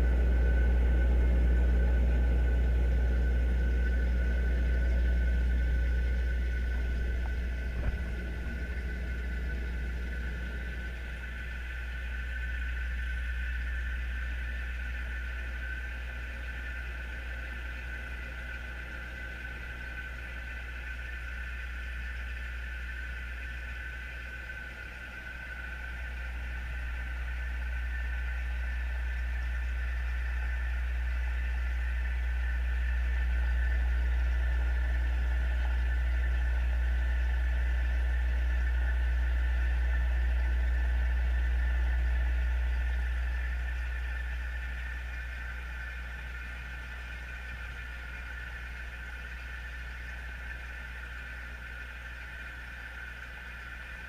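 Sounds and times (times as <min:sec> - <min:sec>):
aquarium pump hum and rumble: 0:00.0 - 0:54.0.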